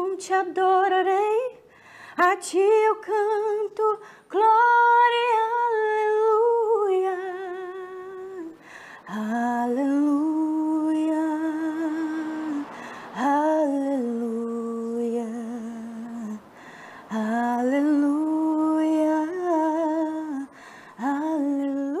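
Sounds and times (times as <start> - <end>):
breaths: 1.6 - 2.2, 4.0 - 4.3, 8.6 - 9.1, 12.6 - 13.2, 16.4 - 17.1, 20.5 - 21.0.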